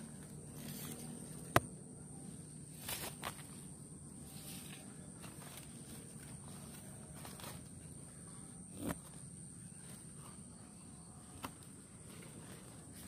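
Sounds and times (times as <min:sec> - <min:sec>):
leaves rustling: 0:00.0 - 0:01.6, 0:02.2 - 0:08.2
steady high whine: 0:00.0 - 0:13.0.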